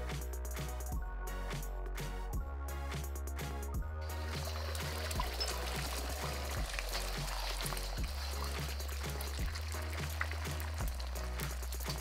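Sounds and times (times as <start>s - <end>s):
background music with beat: 0.0s - 12.0s
eggs sizzling in hot oil: 4.0s - 12.0s.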